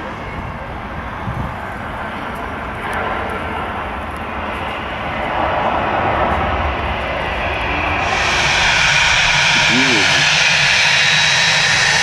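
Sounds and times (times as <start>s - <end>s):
jet engines rushing: 1.5s - 12.0s.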